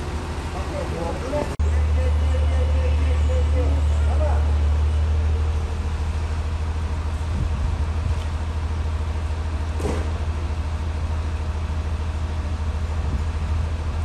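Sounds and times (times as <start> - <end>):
truck engine humming: 0.0 - 14.0
brief knock: 9.8 - 10.1.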